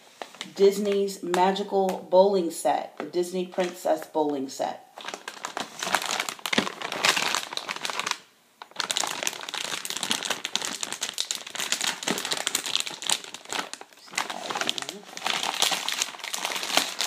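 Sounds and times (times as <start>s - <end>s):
plastic film crinkling: 5.0s - 17.0s.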